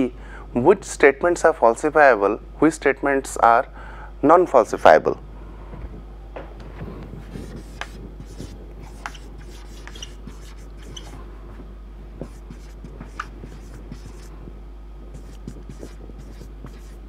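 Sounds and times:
steady low hum: 0.0 - 17.0
marker writing on whiteboard: 7.2 - 11.2, 12.2 - 14.3, 15.1 - 17.0.

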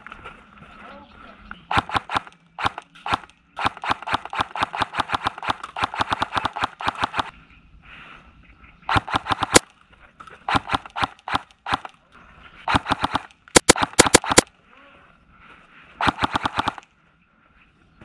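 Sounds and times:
airsoft gun firing: 1.7 - 7.3, 8.9 - 9.7, 10.5 - 11.9, 12.7 - 14.5, 16.0 - 16.8.

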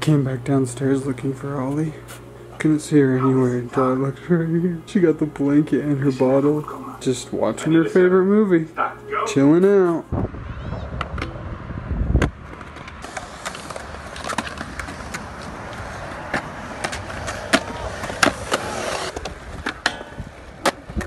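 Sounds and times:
skateboard wheels rolling on concrete: 10.6 - 21.0
skateboards clacking on ground: 12.5 - 21.0.

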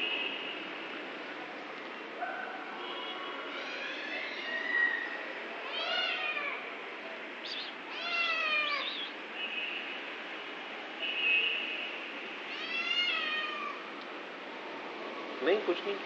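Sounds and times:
kitten meowing: 5.6 - 6.6, 7.6 - 9.1, 12.5 - 13.8.

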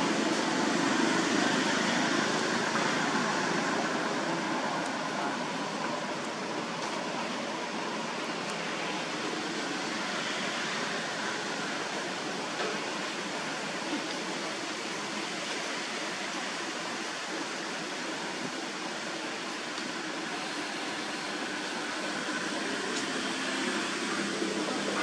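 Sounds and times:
outdoor background hiss: 0.0 - 25.0.

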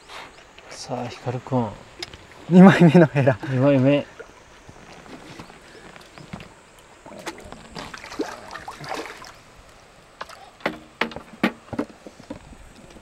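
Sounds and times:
fish splashing in water: 7.0 - 9.6.

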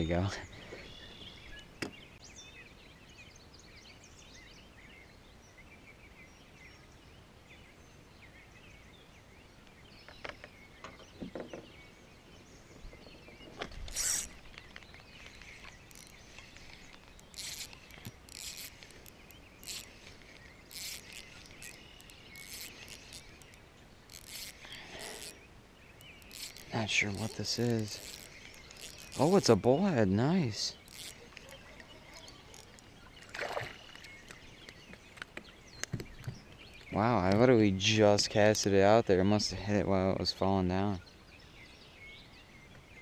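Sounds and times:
faint bird chirps: 0.0 - 37.3
fishing reel scratching: 13.7 - 25.4, 26.0 - 29.8, 30.5 - 32.9.

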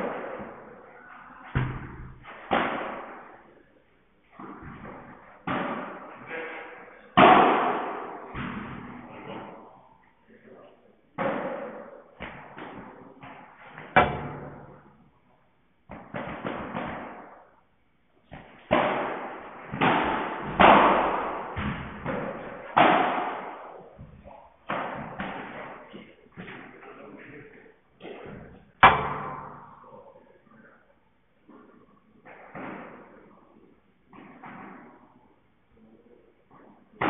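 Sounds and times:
paddles striking ball: 18.3 - 26.8.

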